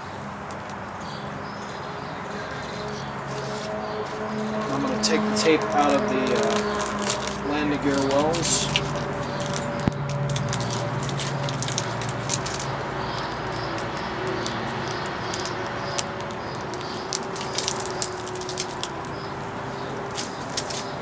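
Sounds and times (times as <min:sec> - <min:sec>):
tape peeling off foam: 0:02.8 - 0:19.4.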